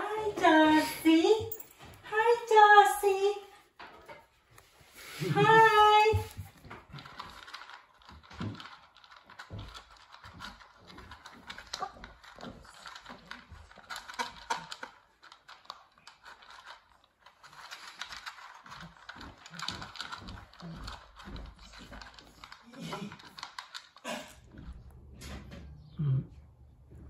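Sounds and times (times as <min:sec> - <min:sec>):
puppy crunching food in bowl: 0:06.1 - 0:25.8.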